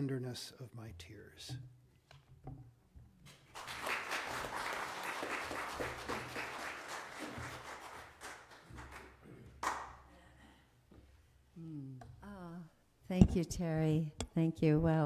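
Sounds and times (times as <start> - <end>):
congregation applauding: 3.3 - 10.1.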